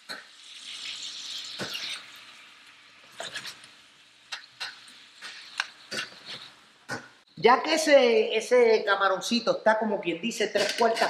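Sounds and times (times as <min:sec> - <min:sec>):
shrimp sizzling in oil: 0:00.0 - 0:07.3.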